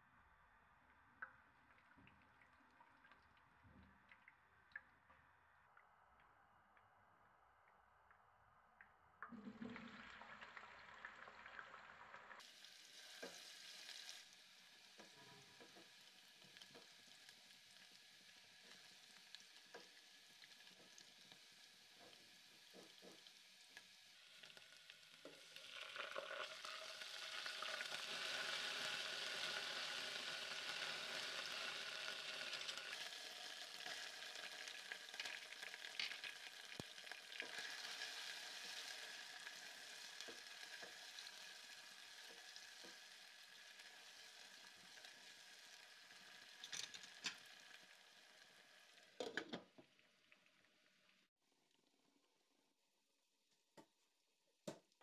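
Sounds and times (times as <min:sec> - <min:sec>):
onions sizzling in hot oil: 0:10.2 - 0:51.1
spatula scraping and tapping pot: 0:15.0 - 0:16.9.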